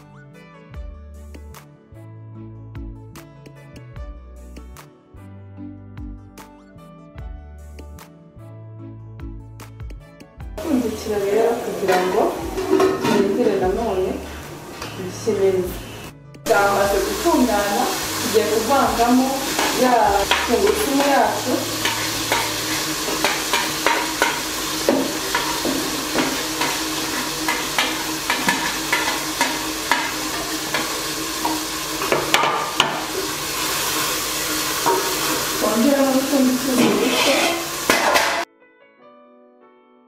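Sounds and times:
food sizzling in oil: 10.6 - 38.5
spoon scraping pot: 11.9 - 13.4, 19.5 - 33.3, 36.8 - 38.4
wooden spoon knocking on pot: 21.8 - 33.1.

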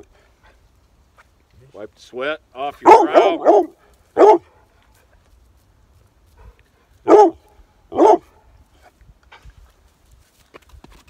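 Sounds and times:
dog barking: 2.8 - 4.6, 7.0 - 8.4.

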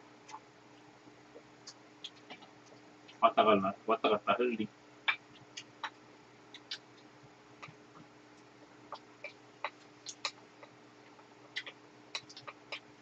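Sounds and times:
low steady hum: 0.0 - 13.0
mouth sounds of eating: 5.1 - 7.8, 8.9 - 13.0.

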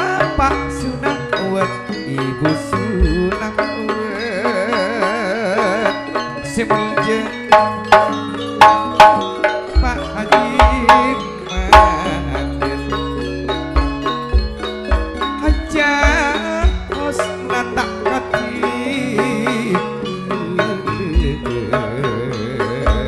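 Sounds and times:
hand-drum beats: 0.0 - 23.0
wavering held melody: 0.0 - 23.0
metallophones struck: 5.9 - 21.4.

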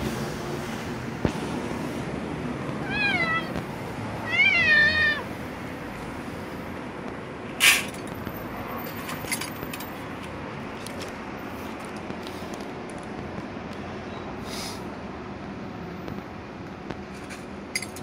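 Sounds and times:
cat meowing: 2.8 - 3.6, 4.2 - 5.3.

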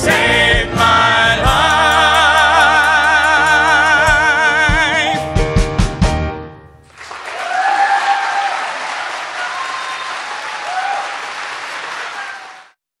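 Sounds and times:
audience applause: 6.9 - 12.8.

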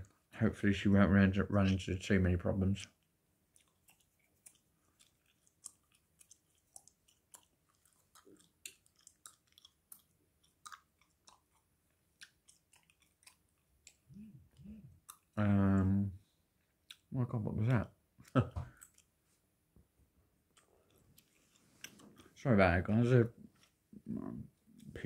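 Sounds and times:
gum chewing mouth clicks: 3.0 - 15.4, 16.6 - 17.1, 18.2 - 19.2, 20.5 - 22.4.

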